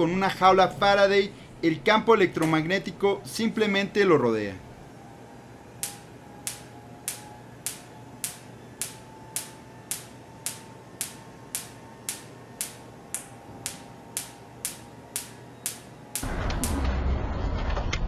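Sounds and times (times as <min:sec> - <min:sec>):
electric sparks cracking: 0:05.8 - 0:17.2.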